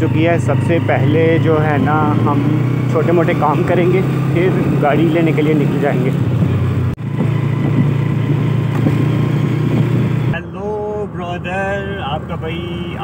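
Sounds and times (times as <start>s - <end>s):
person speaking: 0.0s - 6.2s
motorcycle engine running: 0.0s - 10.4s.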